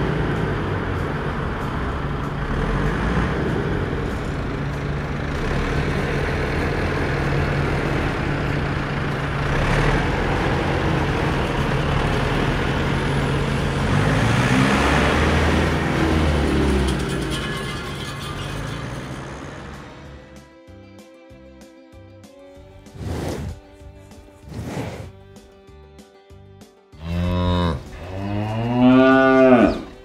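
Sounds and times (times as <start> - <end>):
tractor engine running: 0.0 - 20.4.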